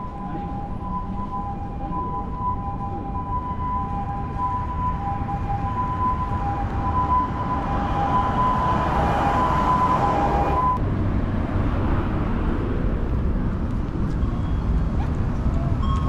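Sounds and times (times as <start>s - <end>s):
two-tone electronic signal: 0.0s - 10.8s
street traffic rumble: 0.0s - 16.0s
vehicle passing: 3.4s - 12.5s.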